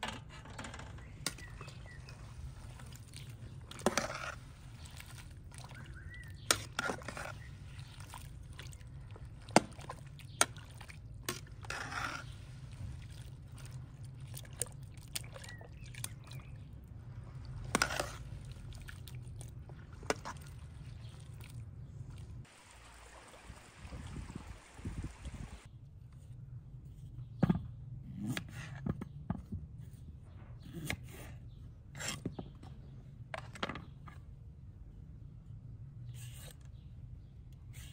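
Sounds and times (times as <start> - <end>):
liquid sloshing: 1.0 - 25.6
small stream trickling: 1.4 - 25.7.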